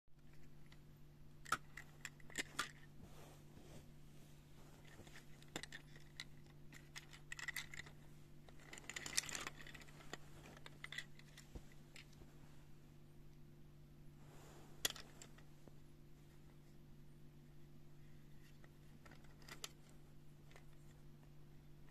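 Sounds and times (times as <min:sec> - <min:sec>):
steady low hum: 0:00.2 - 0:21.9
toy train models clicking and clinking: 0:04.8 - 0:11.4, 0:19.0 - 0:19.9.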